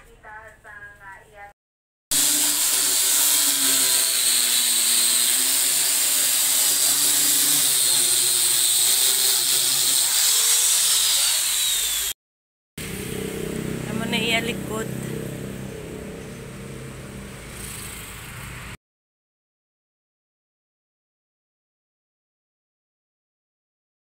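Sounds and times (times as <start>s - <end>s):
electric sander sanding wood: 2.1s - 12.2s.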